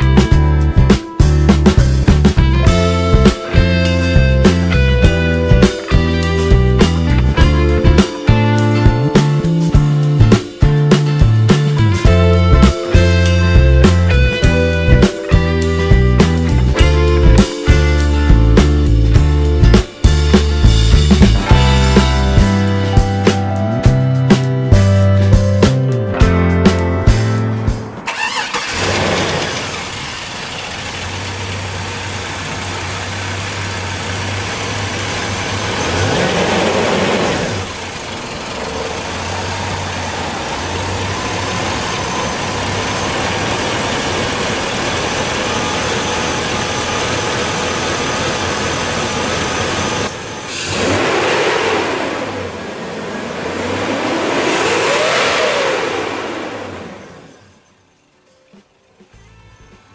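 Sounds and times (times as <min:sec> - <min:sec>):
truck engine starting and revving: 0:27.7 - 0:57.9.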